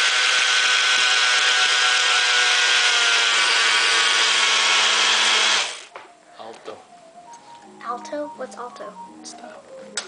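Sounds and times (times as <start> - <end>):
blender motor running: 0.0 - 5.9.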